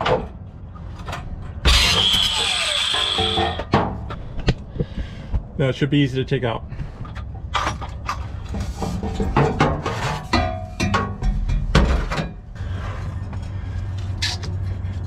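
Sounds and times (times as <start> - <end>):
metal clanks and knocks: 2.9 - 4.2, 7.0 - 12.5.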